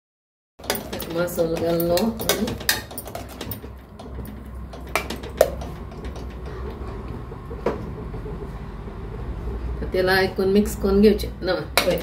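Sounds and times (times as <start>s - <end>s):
spoon clinking against pot: 0.6s - 6.4s
metal spoon stirring in a pot: 0.6s - 7.2s.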